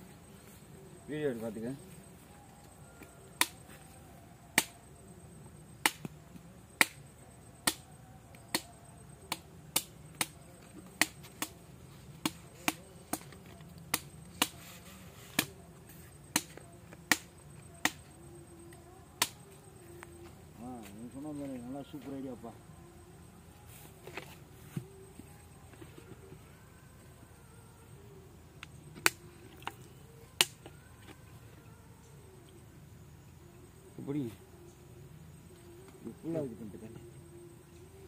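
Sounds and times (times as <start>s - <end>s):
machete chopping coconut husk: 3.4s - 3.7s, 4.6s - 4.8s, 5.8s - 6.2s, 6.8s - 7.8s, 8.5s - 11.6s, 12.2s - 15.6s, 16.2s - 18.1s.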